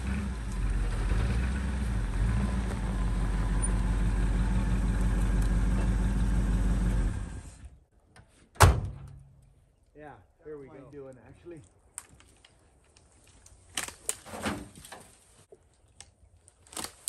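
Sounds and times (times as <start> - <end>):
pickup truck engine running: 0.0 - 7.7.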